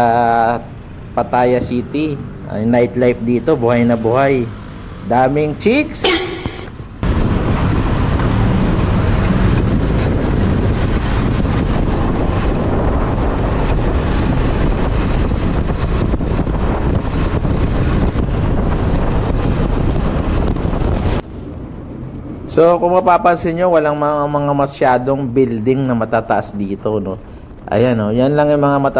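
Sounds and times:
street traffic: 0.0s - 28.9s
wind buffeting microphone: 0.6s - 25.3s.

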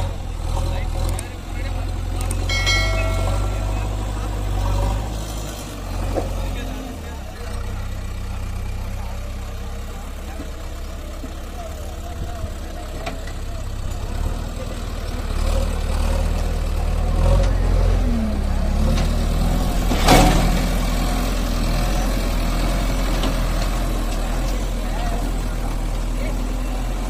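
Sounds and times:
diesel engine running: 0.0s - 27.0s
sharp metal clank: 2.5s - 5.2s.

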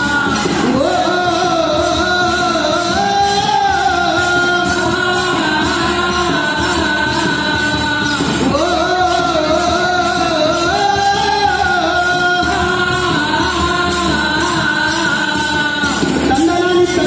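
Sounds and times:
group singing long notes: 0.0s - 17.0s
hand cymbals clashing: 0.0s - 17.0s.

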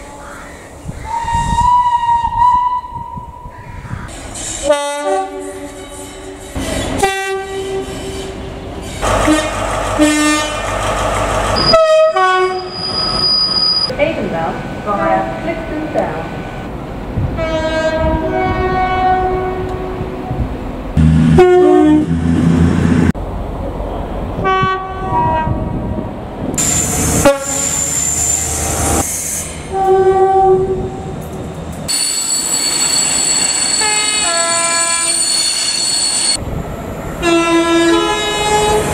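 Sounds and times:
two-note train horn blasts: 7.0s - 8.4s, 9.0s - 10.6s, 21.0s - 22.7s
high-pitched squeal: 7.8s - 13.9s, 26.6s - 29.8s.

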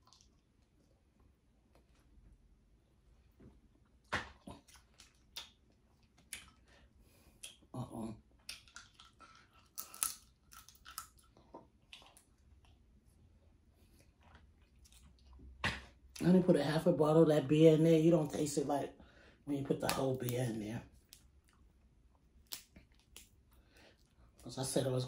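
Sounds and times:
chewing and smacking: 0.0s - 2.3s, 3.2s - 16.2s, 19.9s - 24.5s
food crunching: 3.8s - 7.7s, 8.3s - 13.0s, 13.8s - 16.2s, 19.9s - 24.4s.

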